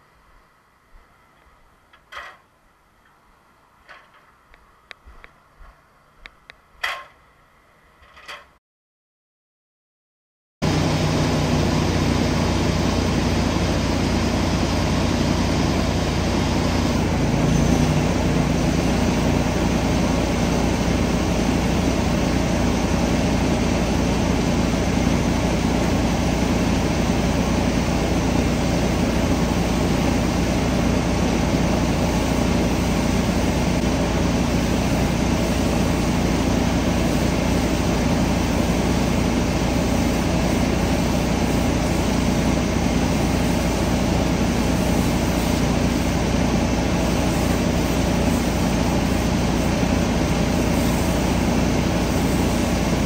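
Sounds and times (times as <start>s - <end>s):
engine running steadily: 10.6s - 53.0s
water spraying from hose: 10.6s - 53.0s.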